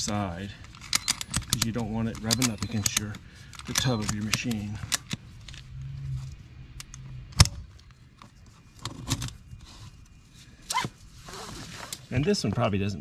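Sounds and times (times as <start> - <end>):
metal clicks of pliers: 0.8 - 5.2.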